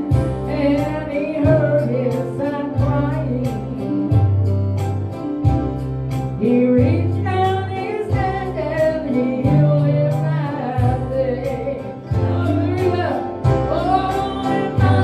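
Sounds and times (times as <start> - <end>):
bass notes: 0.0 - 15.0
guitar accompaniment: 0.0 - 15.0
woman singing gospel song: 0.1 - 4.4, 6.4 - 15.0.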